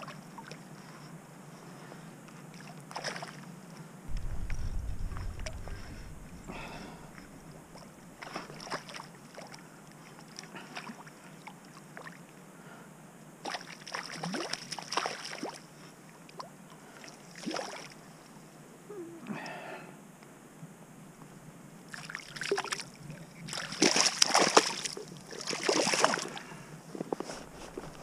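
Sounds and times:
water splashing and sloshing: 2.6s - 3.4s, 4.1s - 9.6s, 13.5s - 15.6s, 17.3s - 18.0s, 21.9s - 26.5s.

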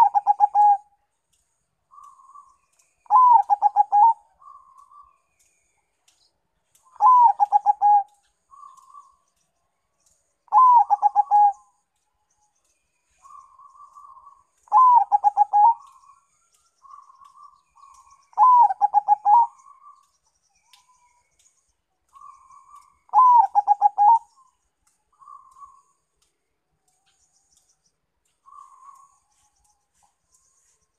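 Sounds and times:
dove cooing: 0.0s - 0.8s, 3.1s - 4.7s, 7.0s - 9.0s, 10.5s - 11.6s, 14.7s - 16.0s, 18.4s - 20.0s, 22.2s - 24.3s.

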